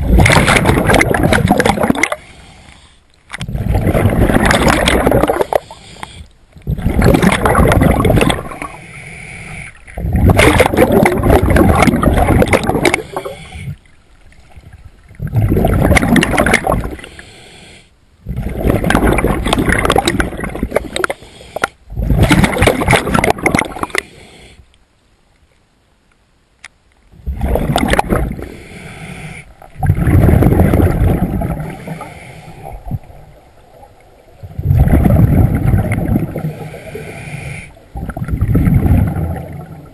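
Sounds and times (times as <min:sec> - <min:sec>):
exhaled air bubbling: 0:00.0 - 0:02.2, 0:03.3 - 0:08.8, 0:09.8 - 0:13.8, 0:14.4 - 0:17.2, 0:18.2 - 0:24.0, 0:27.2 - 0:28.8, 0:29.5 - 0:39.9
diver inhaling through regulator: 0:05.3 - 0:06.4, 0:08.6 - 0:09.9, 0:12.8 - 0:13.8, 0:16.9 - 0:18.0, 0:20.8 - 0:21.8, 0:23.9 - 0:24.7, 0:28.3 - 0:29.7, 0:31.6 - 0:32.8, 0:36.3 - 0:37.9.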